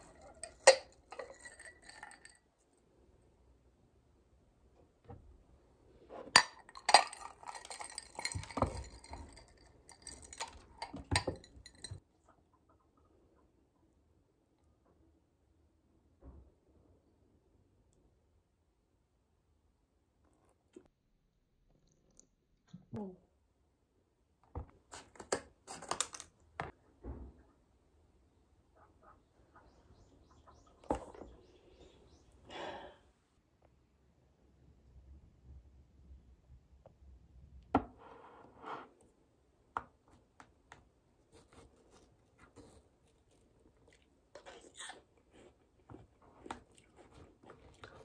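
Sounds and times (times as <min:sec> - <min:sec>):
granola rattling: 0:06.4 - 0:12.0.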